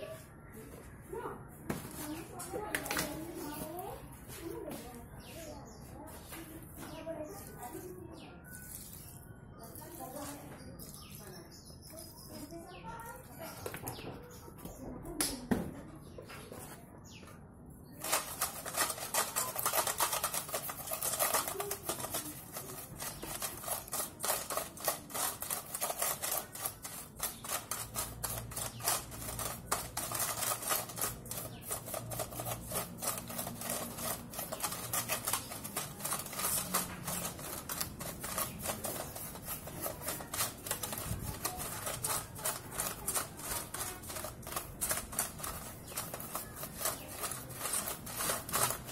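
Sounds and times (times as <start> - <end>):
brush scrubbing a bicycle chain: 7.3 - 11.4, 18.0 - 48.9.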